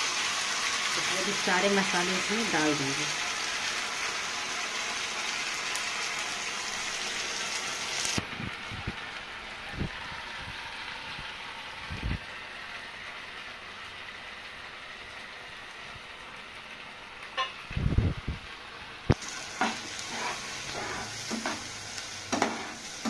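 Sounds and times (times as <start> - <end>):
masala sizzling in oil: 0.0 - 23.0
spatula scraping a pan: 19.3 - 23.0.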